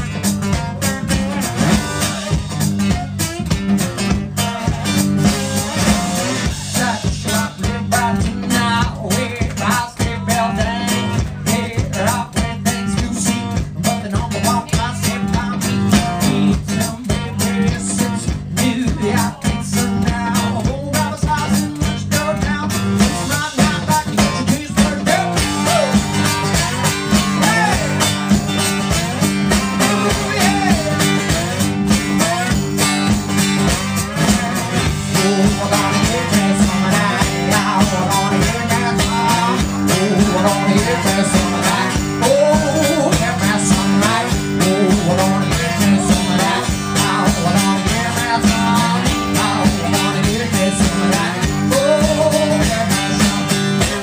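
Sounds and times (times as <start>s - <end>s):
amplified blues guitar: 0.0s - 54.0s
steady drum beat: 0.0s - 54.0s.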